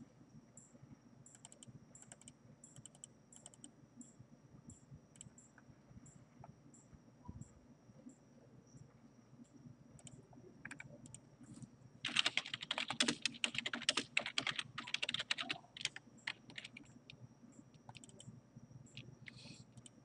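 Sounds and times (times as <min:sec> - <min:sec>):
keyboard typing: 0:01.3 - 0:03.7, 0:10.0 - 0:11.2, 0:12.0 - 0:18.3.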